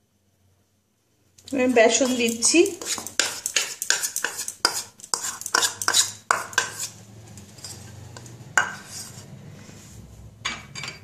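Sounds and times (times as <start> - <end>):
spoon tapping and scraping bowl: 1.9 - 9.2.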